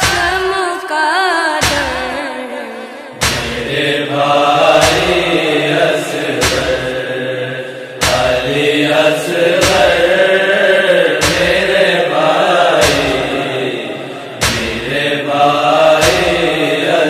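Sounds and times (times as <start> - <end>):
boy chanting a lament: 0.0 - 3.2
deep beat: 3.2 - 7.1, 8.0 - 10.3, 11.2 - 13.7, 14.4 - 16.9.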